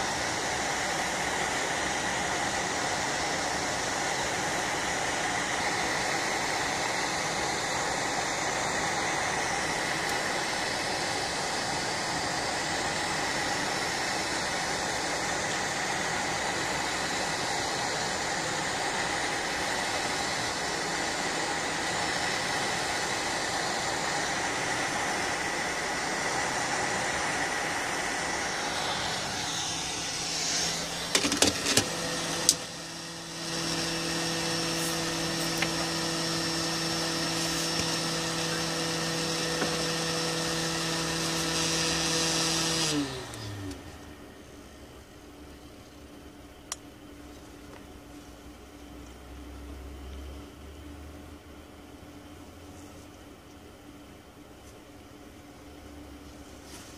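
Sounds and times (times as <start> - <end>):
hot air nozzle blowing: 0.0 - 43.7.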